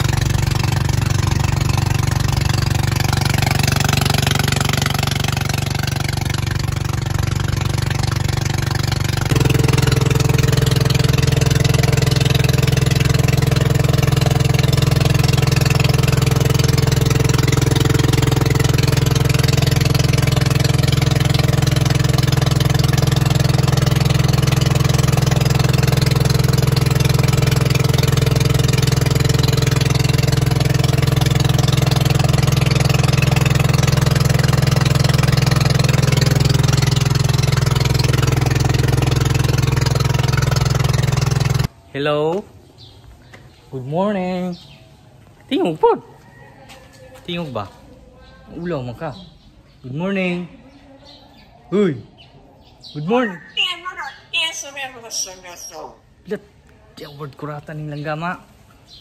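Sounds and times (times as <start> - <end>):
boat engine droning: 0.0 - 41.7.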